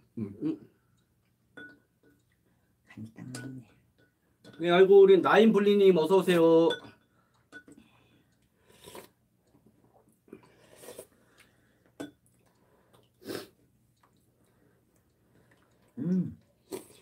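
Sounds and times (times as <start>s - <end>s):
slurping and chewing: 7.3s - 17.0s.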